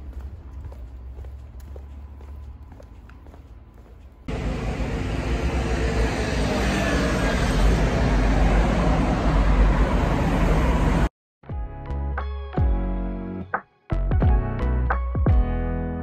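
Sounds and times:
vehicle engine and tyres: 0.0s - 11.1s.

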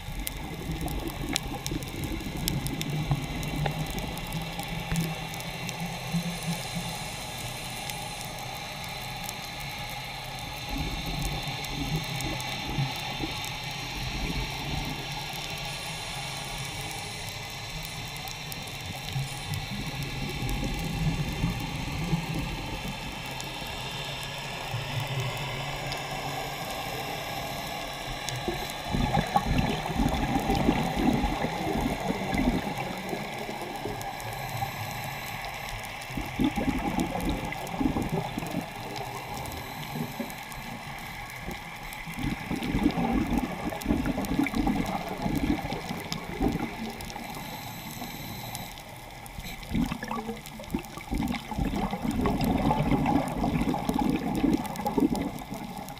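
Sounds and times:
diver exhaling bubbles underwater: 28.4s - 33.8s, 36.2s - 39.2s, 42.1s - 47.4s, 49.5s - 55.9s.

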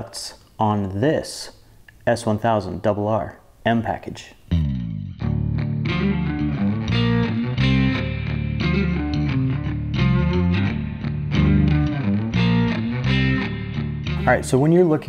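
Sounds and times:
electric guitar intro music: 4.5s - 14.5s.

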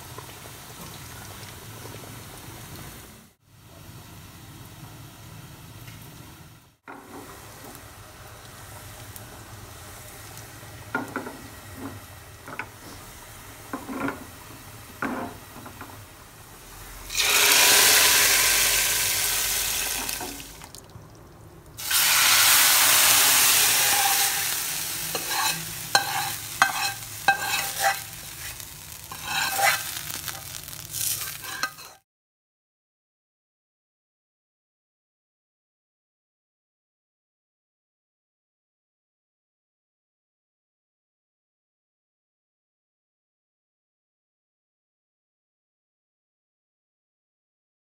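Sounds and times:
oil and onions sizzling: 0.0s - 32.0s
utensil clinking against pot: 25.2s - 28.1s.

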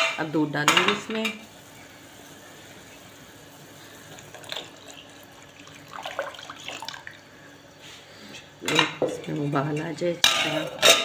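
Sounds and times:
milk pouring into a pot: 1.6s - 7.5s.

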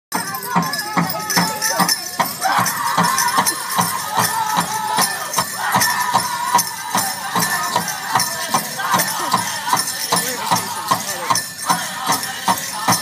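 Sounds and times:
bells jingling: 0.1s - 13.0s
steady drumbeat: 0.1s - 13.0s
drum group singing: 0.2s - 13.0s.

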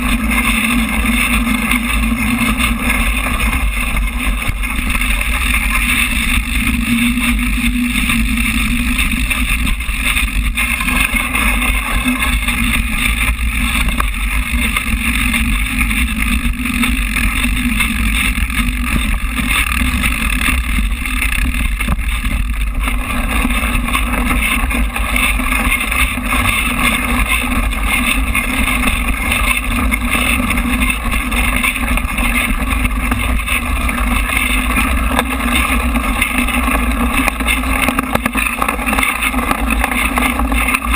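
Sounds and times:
bike tyres rumbling on dirt trail: 0.0s - 40.9s
wind on microphone: 0.0s - 40.9s.

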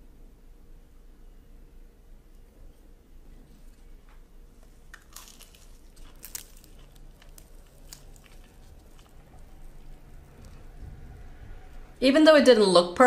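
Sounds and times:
waffle crust crackling and crunching: 3.3s - 12.0s.

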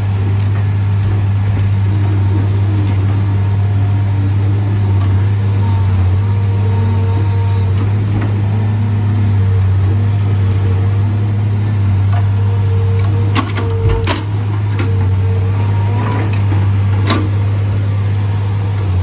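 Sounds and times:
diesel engine droning under load: 0.0s - 19.0s
hydraulic whine: 0.0s - 19.0s.

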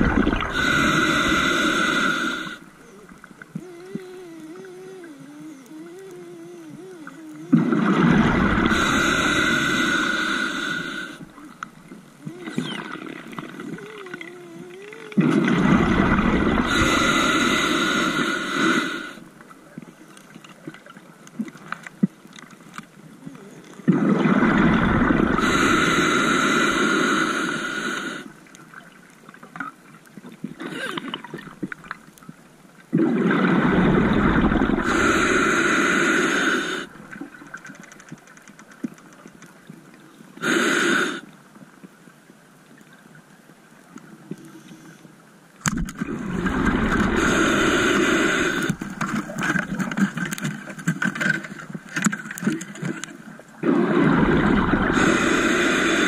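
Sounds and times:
exhaled bubbles underwater: 0.0s - 11.6s, 12.2s - 18.4s, 23.8s - 26.4s, 32.9s - 37.6s, 45.9s - 50.4s, 53.5s - 56.0s
faint underwater crackling: 0.0s - 56.0s.

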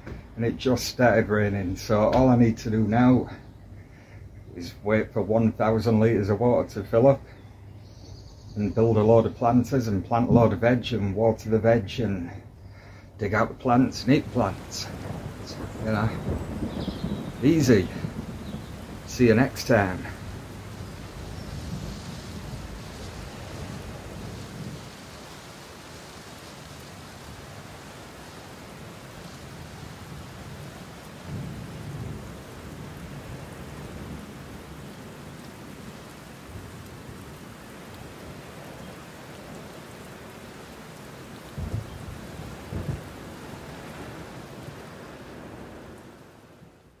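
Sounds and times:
steady rain falling: 0.0s - 47.0s
low rumbles: 8.8s - 24.9s
short low thuds: 41.6s - 43.2s.

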